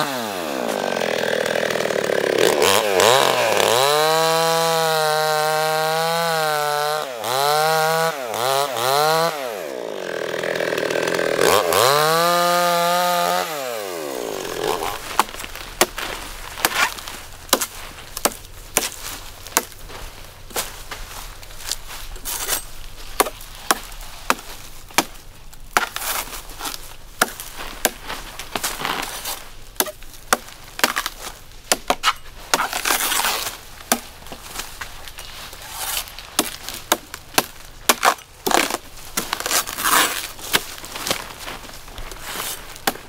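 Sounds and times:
blade chopping coconut: 0:10.5 - 0:16.0, 0:25.8 - 0:28.0, 0:31.7 - 0:34.1.

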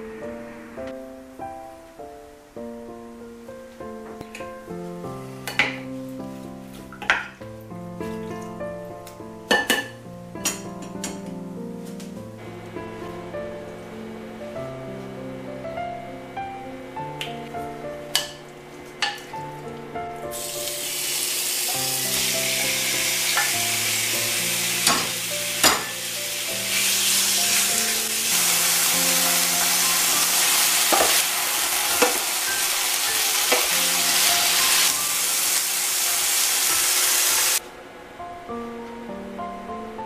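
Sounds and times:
soft background music: 0:00.0 - 0:40.0
chicken sizzling in hot oil: 0:20.3 - 0:37.6.

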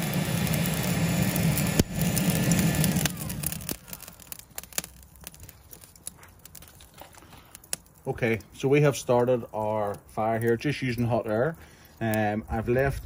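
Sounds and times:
hot-air lighter fan blowing: 0:00.0 - 0:06.1
charcoal crackling and popping: 0:00.0 - 0:13.0.

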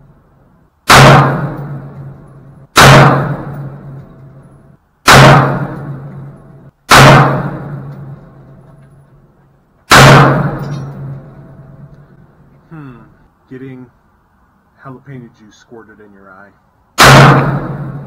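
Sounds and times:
pistol gunshots: 0:00.9 - 0:02.2, 0:02.8 - 0:04.0, 0:05.0 - 0:06.3, 0:06.9 - 0:08.2, 0:09.9 - 0:11.3, 0:17.0 - 0:18.0.

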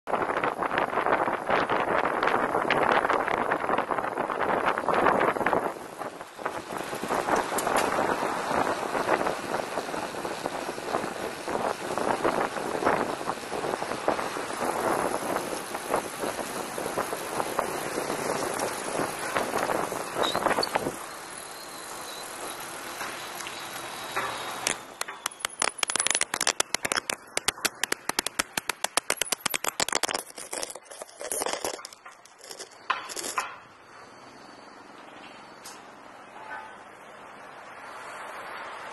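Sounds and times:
wind noise: 0:00.1 - 0:21.1
bicycle road noise: 0:00.1 - 0:38.9
camera stick rattling on road: 0:24.6 - 0:33.6.

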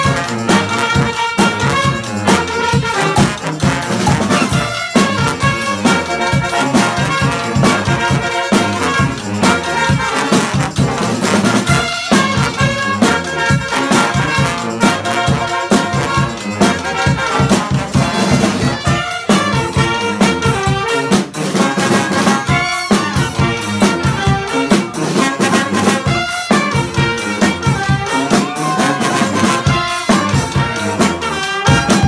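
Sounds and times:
brass band playing: 0:00.0 - 0:32.0
steady drum beat: 0:00.0 - 0:32.0.

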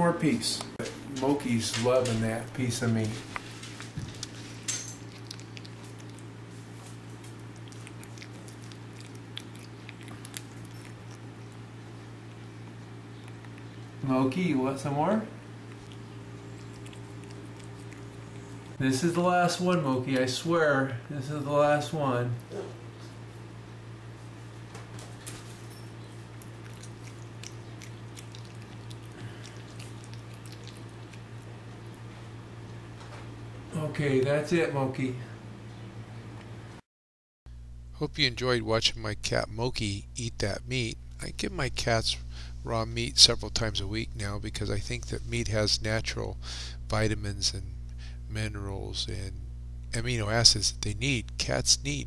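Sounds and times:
steady low hum: 0:00.0 - 0:36.8, 0:37.5 - 0:52.0
cat chewing meat: 0:01.2 - 0:14.0, 0:15.4 - 0:18.8, 0:25.9 - 0:32.9.

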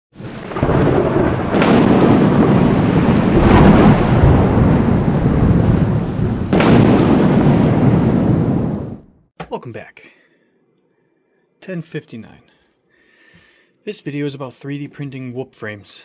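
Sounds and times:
heavy rain: 0:00.1 - 0:09.0
thunder claps and rumble: 0:00.2 - 0:09.1.

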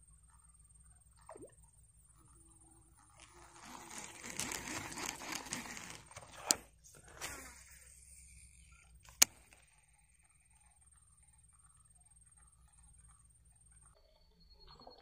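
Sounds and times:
fishing reel clicks: 0:03.1 - 0:07.4
rustling in tall grass: 0:03.1 - 0:08.8
sharp click: 0:09.0 - 0:09.6.

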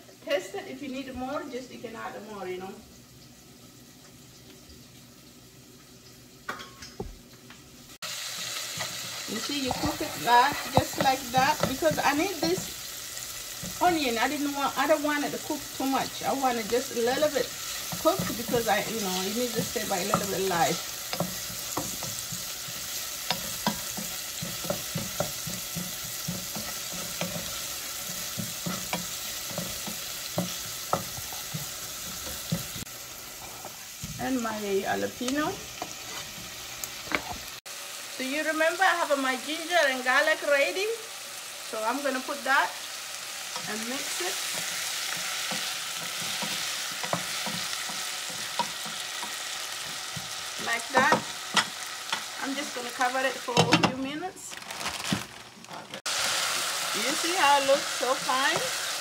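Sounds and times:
onion sizzling in oil: 0:00.0 - 0:59.0
wooden spatula stirring: 0:08.7 - 0:34.6, 0:43.5 - 0:51.7
wooden spatula knocking on pan: 0:09.6 - 0:12.7.

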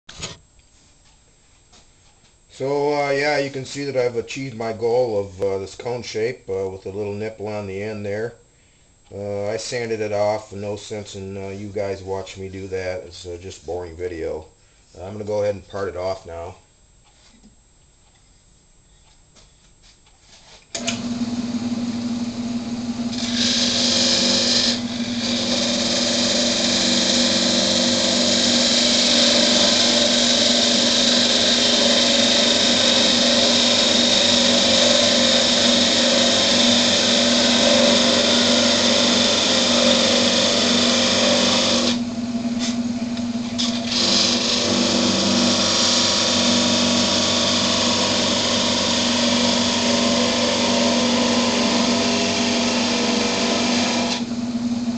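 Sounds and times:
tool scraping spinning wood: 0:20.2 - 0:54.9
wood lathe motor hum: 0:20.7 - 0:54.9.

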